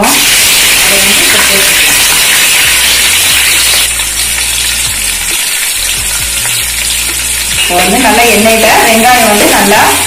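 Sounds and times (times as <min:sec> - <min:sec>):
onions sizzling in hot oil: 0:00.0 - 0:10.0.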